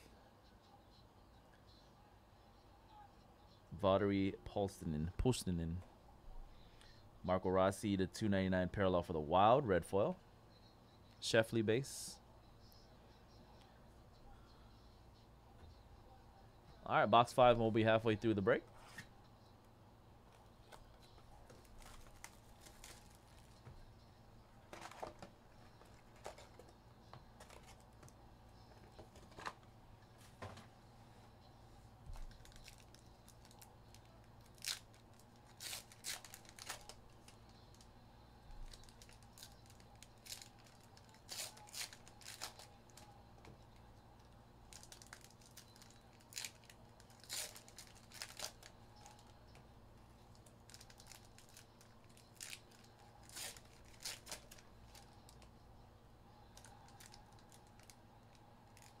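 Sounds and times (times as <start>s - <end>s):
wrapper packaging tearing and crinkling: 21.7s - 23.4s, 34.4s - 37.0s, 38.6s - 43.0s, 44.7s - 49.3s, 50.4s - 55.4s, 56.6s - 58.0s.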